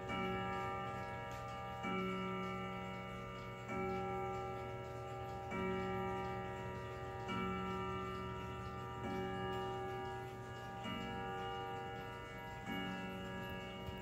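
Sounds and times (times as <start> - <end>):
clock striking: 0.0 - 14.0
clock ticking: 0.0 - 14.0.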